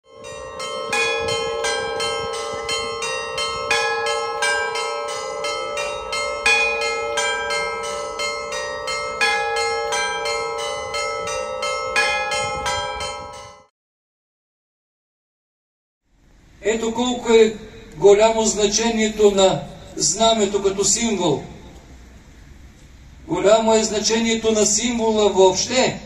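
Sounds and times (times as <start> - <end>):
church bells ringing a peal: 0.0 - 13.7.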